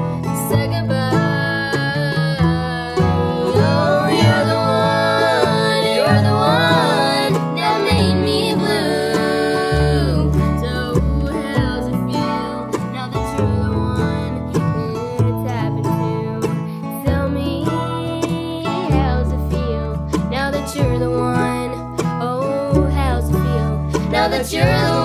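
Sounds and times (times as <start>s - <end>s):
acoustic guitar: 0.0s - 25.0s
fiddle: 0.0s - 25.0s
mandolin: 0.0s - 25.0s
upright bass: 0.0s - 25.0s
voices singing in harmony: 0.5s - 13.1s, 23.3s - 25.0s.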